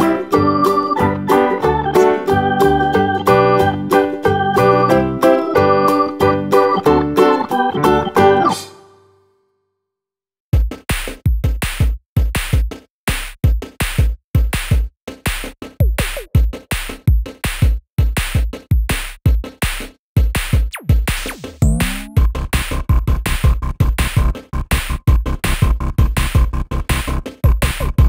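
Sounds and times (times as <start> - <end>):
electronic music with drum beat: 10.6 - 28.0.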